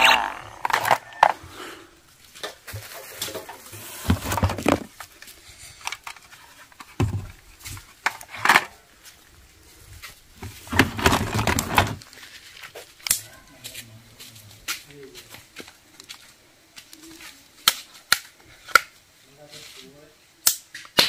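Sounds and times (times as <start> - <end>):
plastic toy guns clattering: 0.6 - 1.4, 8.0 - 8.8.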